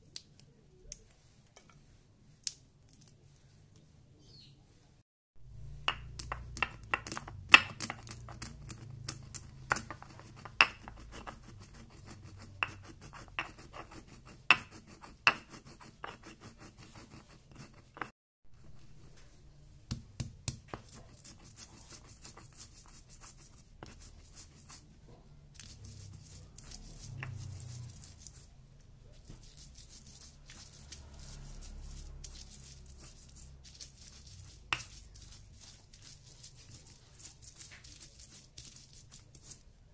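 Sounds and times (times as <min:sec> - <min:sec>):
stone pestle grinding: 0:05.5 - 0:19.0, 0:25.6 - 0:28.5, 0:29.2 - 0:39.6
peppercorns cracking under pestle: 0:05.8 - 0:11.3, 0:29.4 - 0:39.6.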